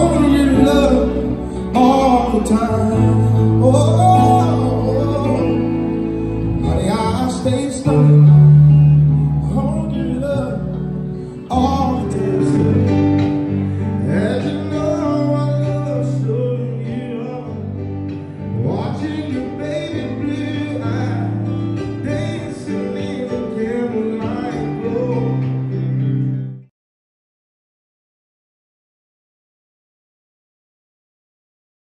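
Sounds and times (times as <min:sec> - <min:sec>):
man singing into microphone: 0:00.0 - 0:25.9
guitar: 0:00.0 - 0:26.7
keyboard: 0:00.0 - 0:26.7.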